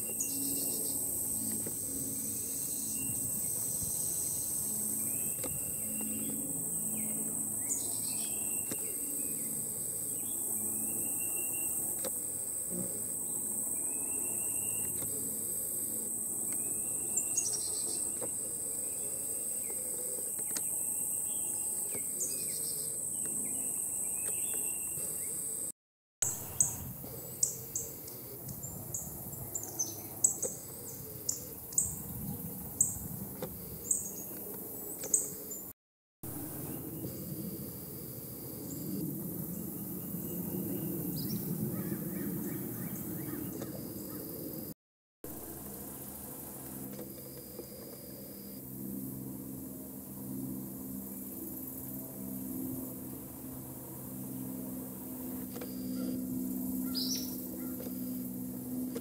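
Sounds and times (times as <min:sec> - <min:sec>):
high-pitched insect trill: 0:00.0 - 0:25.7
songbirds whistling: 0:56.8 - 0:57.9.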